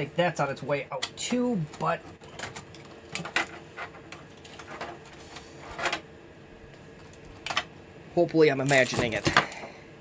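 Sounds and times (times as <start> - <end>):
clicks and rustles of cable handling: 0.9 - 6.1, 8.6 - 9.7.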